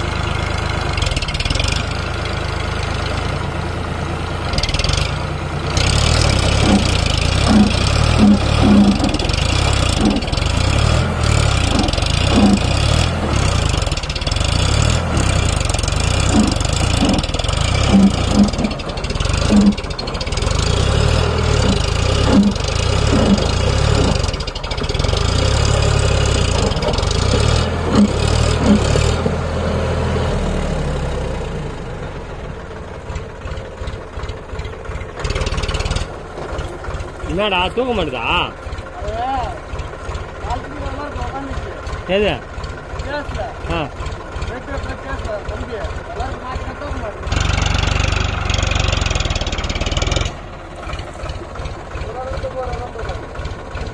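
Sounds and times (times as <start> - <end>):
heavy diesel engine rumbling: 0.0 - 53.9.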